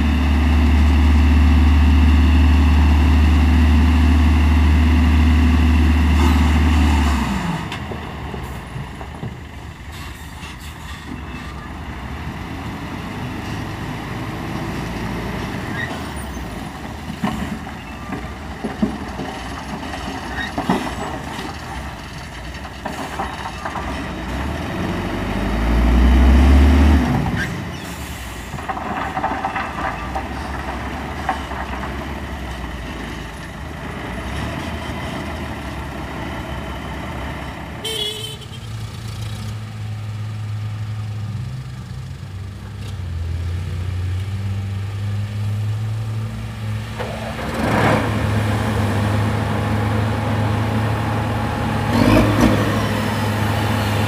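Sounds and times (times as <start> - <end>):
diesel truck engine running: 46.3 - 54.0.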